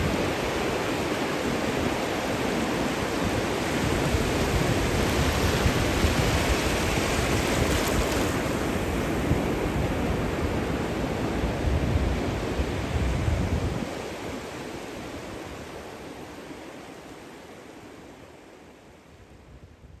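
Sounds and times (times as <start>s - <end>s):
low wind rumble on microphone: 0.0s - 16.4s, 19.0s - 20.0s
surf on sandy beach: 0.0s - 20.0s.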